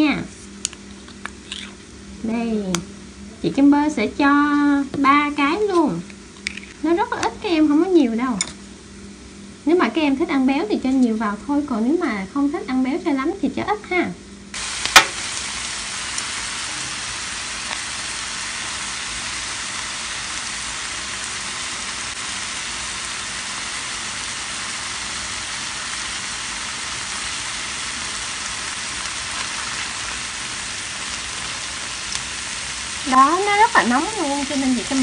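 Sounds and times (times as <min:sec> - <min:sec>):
corn kernels sizzling in a pan: 0:14.6 - 0:35.0.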